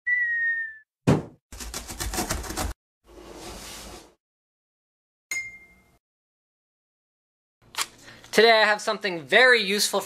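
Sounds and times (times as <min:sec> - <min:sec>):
box landing thump: 0:01.1 - 0:01.4.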